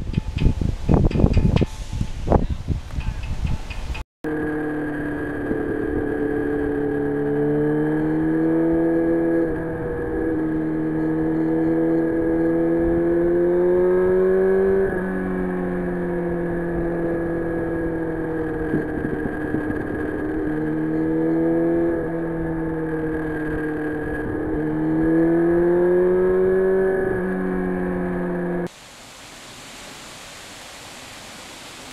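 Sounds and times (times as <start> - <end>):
motorcycle engine accelerating: 4.2 - 28.7.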